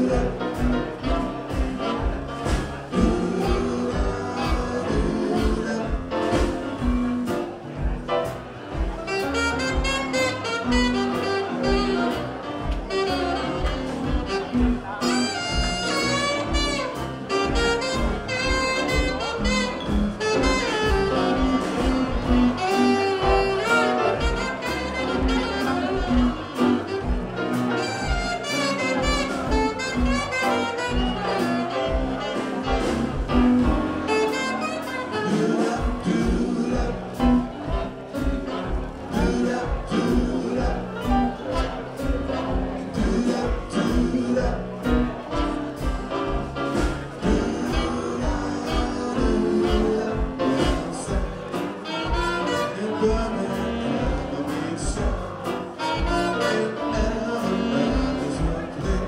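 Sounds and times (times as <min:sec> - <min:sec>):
jazz band playing: 0:00.0 - 0:59.0
saxophone lead: 0:00.0 - 0:59.0.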